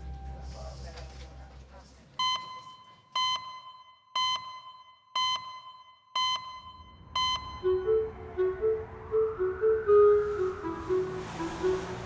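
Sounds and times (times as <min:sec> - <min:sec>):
soft music notes: 0:07.5 - 0:12.0.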